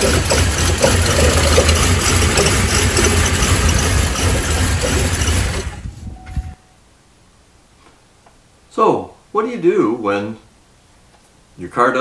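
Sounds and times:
car engine running poorly: 0.0 - 6.0.

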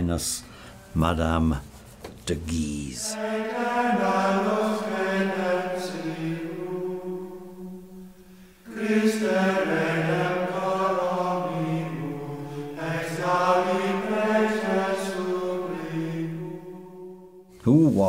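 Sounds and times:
men chanting in unison: 2.7 - 7.0, 8.7 - 16.5.

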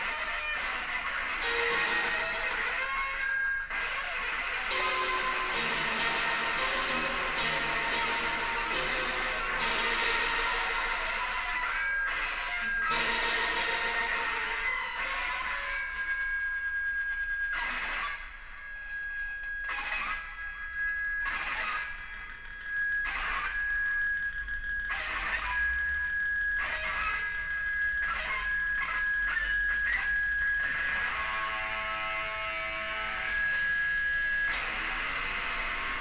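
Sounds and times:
high ringing guitar tone: 0.0 - 36.0
sharp guitar hits: 3.7 - 15.8
low guitar chord ringing: 4.7 - 15.8.

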